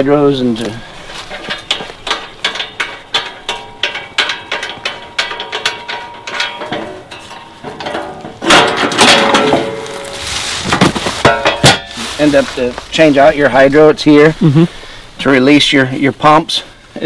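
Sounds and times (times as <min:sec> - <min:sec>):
metallic clicks and clanks: 0:00.6 - 0:10.1
metal panel rattling: 0:01.2 - 0:12.0.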